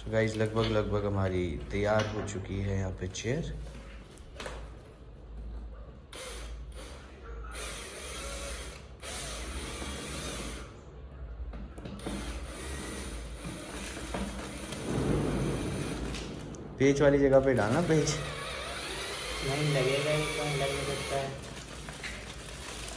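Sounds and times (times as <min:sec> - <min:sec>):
cordless drill driving screws: 0:07.6 - 0:10.7, 0:18.2 - 0:21.4.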